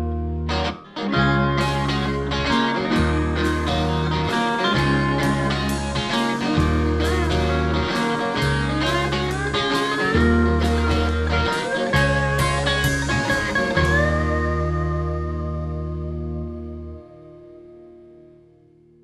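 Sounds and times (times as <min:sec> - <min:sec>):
electric bass long notes: 0:00.0 - 0:19.0
electric guitar: 0:00.0 - 0:19.0
lap steel guitar sliding: 0:00.6 - 0:16.2
drum kit steady beat: 0:02.0 - 0:14.6.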